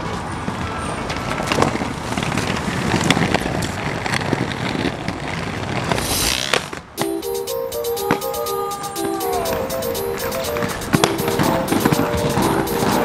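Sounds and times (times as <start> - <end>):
skateboard wheels rolling on bricks: 0.5 - 7.0.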